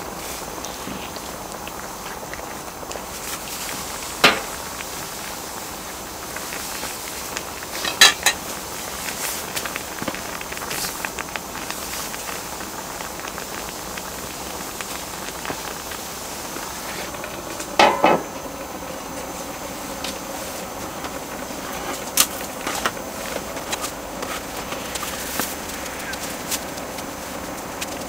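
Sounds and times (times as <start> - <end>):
broth simmering hiss: 0.0 - 28.0
metal lid clanking onto griddle: 7.8 - 8.4, 17.8 - 18.2.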